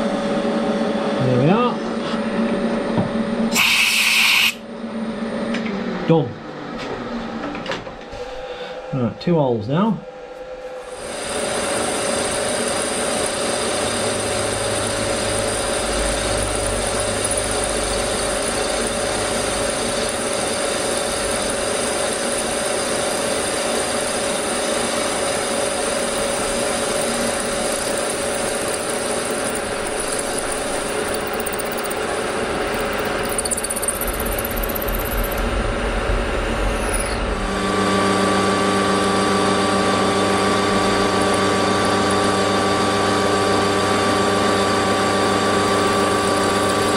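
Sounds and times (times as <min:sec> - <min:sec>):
milling machine drilling metal: 0:03.5 - 0:04.6, 0:10.9 - 0:35.6, 0:36.7 - 0:46.9.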